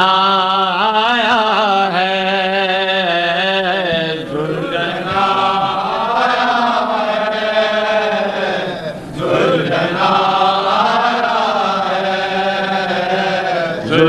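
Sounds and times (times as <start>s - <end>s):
lead voice singing: 0.0s - 14.0s
men chanting a lament: 0.0s - 14.0s.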